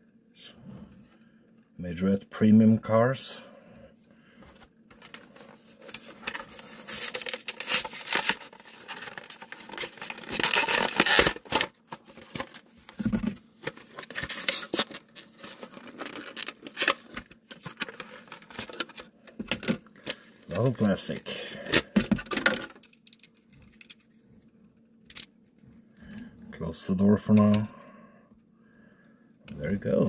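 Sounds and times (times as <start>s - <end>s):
plastic blister pack crackling: 5.0s - 12.7s, 13.6s - 20.6s.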